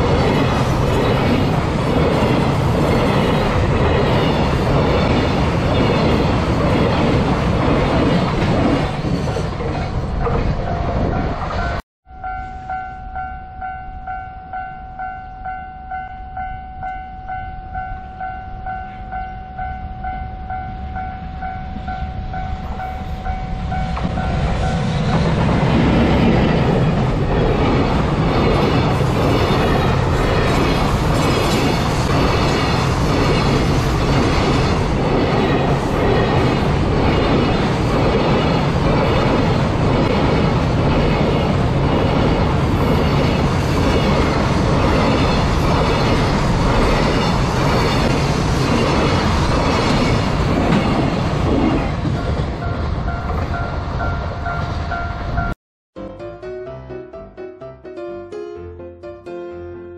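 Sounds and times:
freight train approaching: 0:00.0 - 0:55.6
crossing alarm pulsing two-tone: 0:10.2 - 0:24.9.

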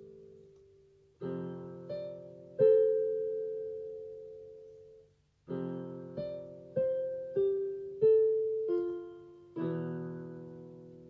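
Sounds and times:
slow solo piano music: 0:00.0 - 0:11.0.

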